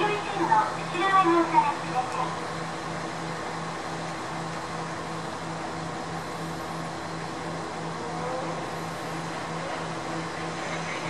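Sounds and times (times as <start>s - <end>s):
diesel engine throbbing: 0.0s - 11.0s.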